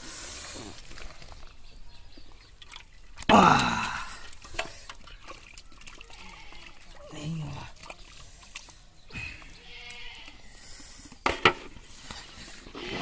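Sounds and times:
water dripping and trickling: 0:00.2 - 0:10.8
water sloshing in basin: 0:00.7 - 0:10.3.

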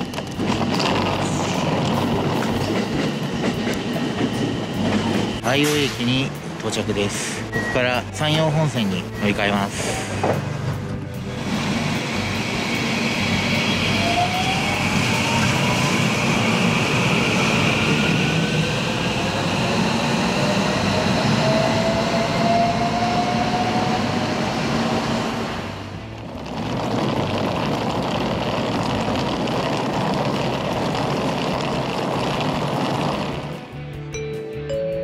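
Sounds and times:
train motor whine rising: 0:00.0 - 0:06.1, 0:09.6 - 0:33.8
wheels rumbling on rails: 0:00.0 - 0:34.0.

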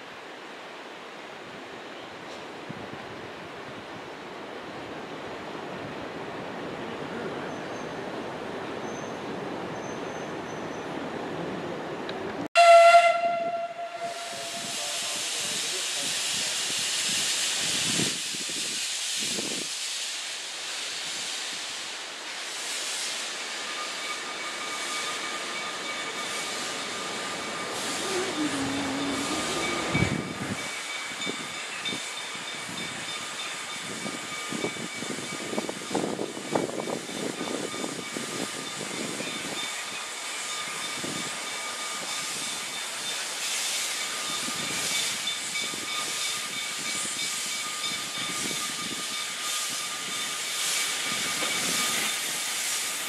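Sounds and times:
steam locomotive whistle: 0:12.6 - 0:15.3, 0:23.7 - 0:30.4
puffs of steam: 0:13.9 - 0:53.0
steam hissing: 0:14.0 - 0:53.0.

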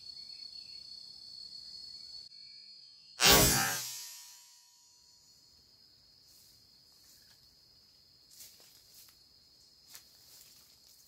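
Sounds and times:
high-pitched insect call: 0:00.0 - 0:11.0.

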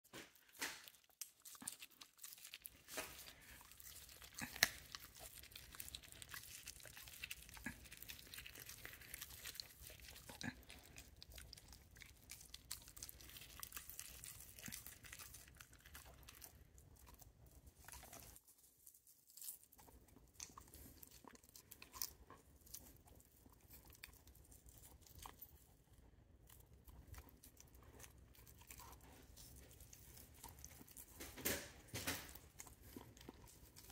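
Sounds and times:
teeth cracking on bone: 0:00.1 - 0:18.4, 0:19.3 - 0:33.9
dog chewing on bone: 0:00.2 - 0:18.4, 0:26.5 - 0:33.9.

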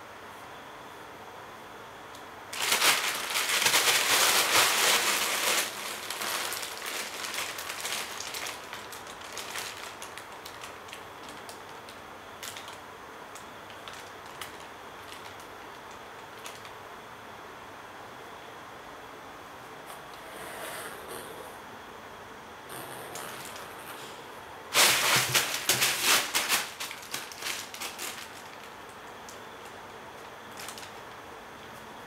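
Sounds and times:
plastic bag crinkling: 0:02.5 - 0:12.8, 0:13.7 - 0:16.7, 0:24.7 - 0:31.2.

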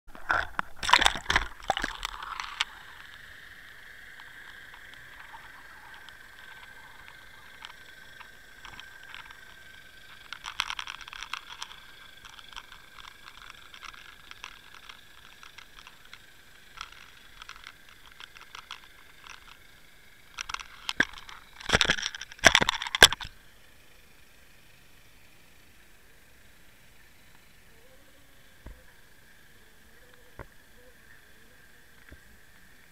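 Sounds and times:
underwater clicks and rattles: 0:00.1 - 0:23.4
faint high whine: 0:00.1 - 0:32.9.

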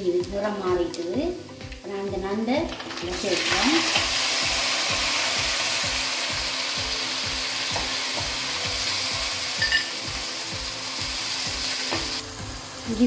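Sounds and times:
crab sizzling in hot oil: 0:02.6 - 0:13.0.

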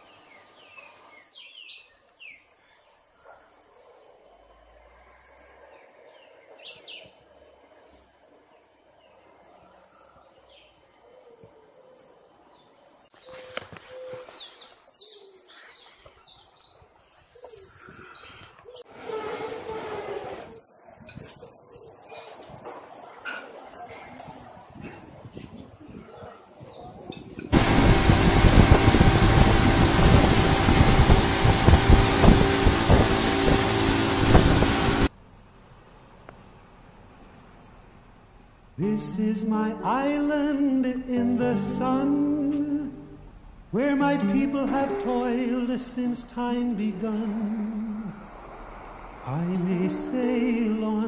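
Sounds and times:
low cooing calls: 0:10.8 - 0:12.4, 0:13.2 - 0:15.8, 0:17.3 - 0:22.5
wind noise on microphone: 0:19.0 - 0:21.5, 0:24.2 - 0:35.1
motorboat engine drone: 0:27.5 - 0:35.1.

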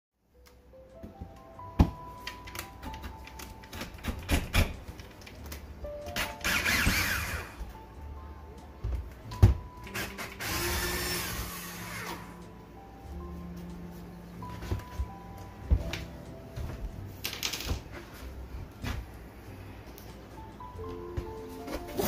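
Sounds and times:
background music: 0:00.2 - 0:22.0
cordless drill driving screws: 0:06.2 - 0:07.6, 0:10.0 - 0:12.3.

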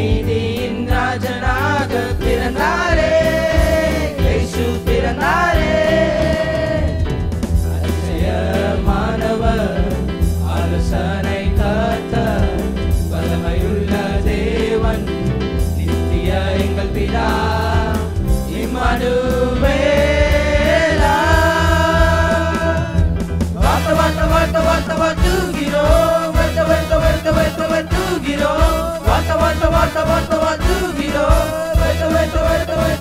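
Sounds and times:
male choir singing: 0:00.0 - 0:07.1, 0:07.7 - 0:33.0
instrumental accompaniment with beat: 0:00.0 - 0:33.0.

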